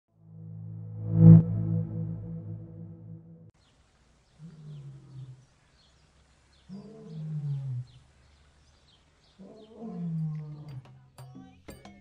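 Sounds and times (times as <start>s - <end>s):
lion roaring: 4.4s - 5.5s, 6.7s - 8.0s, 9.4s - 10.8s.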